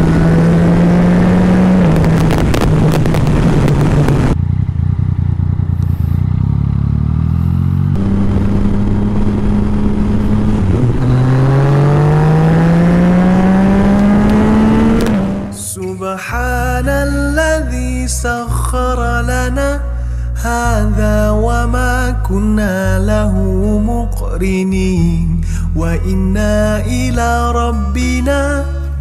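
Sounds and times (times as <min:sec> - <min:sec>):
wind rush on microphone: 0:00.0 - 0:04.4, 0:08.0 - 0:15.6
motorcycle engine accelerating: 0:00.0 - 0:15.8.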